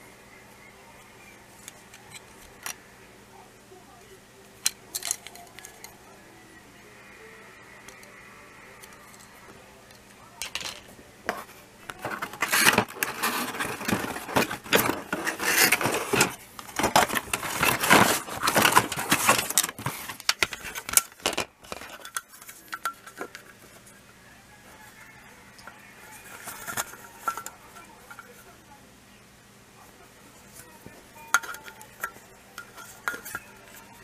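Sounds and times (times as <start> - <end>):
plastic toy rails clattering: 4.6 - 6.0, 11.9 - 23.6.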